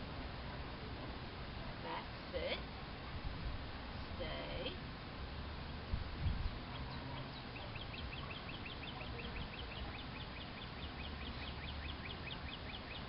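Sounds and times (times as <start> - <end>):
wind rumble on microphone: 3.1 - 4.5, 5.8 - 10.0
bird chirping rapidly: 6.7 - 13.0.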